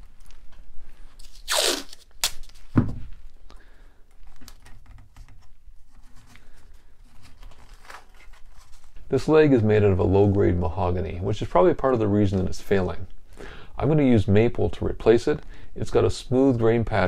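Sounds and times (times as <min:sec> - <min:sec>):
tape crinkling and rustling: 0:00.0 - 0:03.4, 0:04.1 - 0:09.5
tape ripping off roll: 0:01.2 - 0:03.0.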